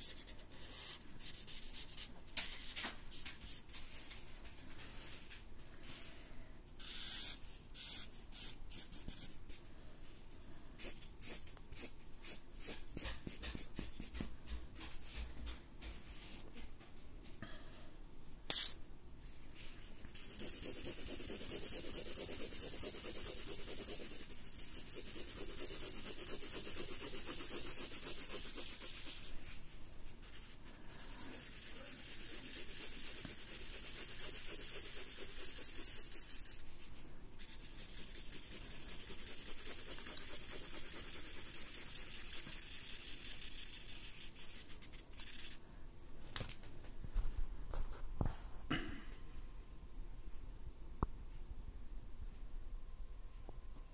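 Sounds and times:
marker rasping on paper: 0:00.0 - 0:03.6, 0:06.8 - 0:09.6, 0:10.8 - 0:14.3, 0:19.6 - 0:45.6
sharp click: 0:18.5 - 0:18.8.

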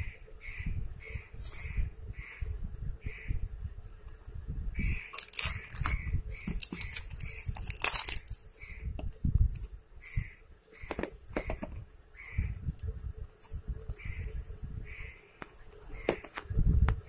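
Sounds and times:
scissors snipping plastic film: 0:05.2 - 0:08.5
plastic film crinkling: 0:05.2 - 0:08.6.

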